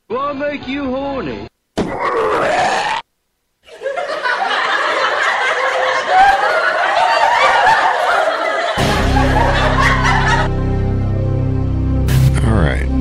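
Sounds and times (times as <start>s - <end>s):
recorded voice clip: 0.0s - 1.6s, 12.2s - 13.0s
crowd laughing: 3.6s - 11.0s.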